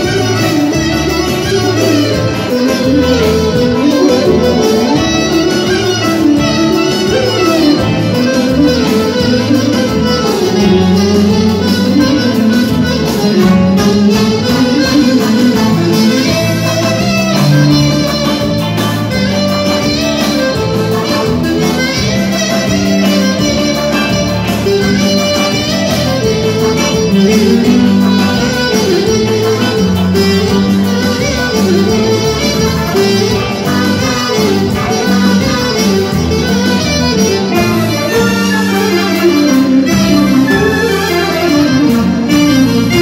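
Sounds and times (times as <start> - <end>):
clarinet melody: 0.0 - 43.0
electric guitar: 0.0 - 43.0
keyboard: 0.0 - 43.0
steady drum beat: 0.0 - 43.0
violin: 0.0 - 43.0.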